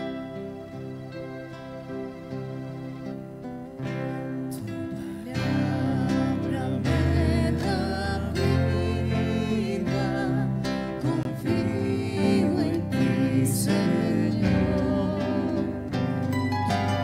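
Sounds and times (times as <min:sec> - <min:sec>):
acoustic guitar: 0:00.0 - 0:17.0
keyboard: 0:00.0 - 0:17.0
woman singing: 0:04.9 - 0:16.3.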